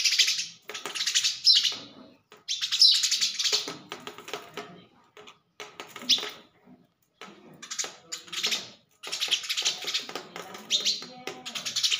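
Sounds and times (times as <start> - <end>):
sparrows chirping rapidly: 0.0 - 4.0, 7.5 - 11.9.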